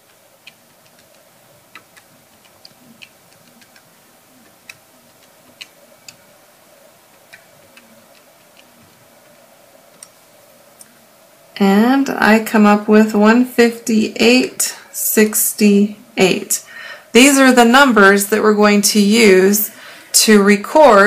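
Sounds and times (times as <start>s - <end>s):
calculator keys clicking: 0.0s - 6.2s.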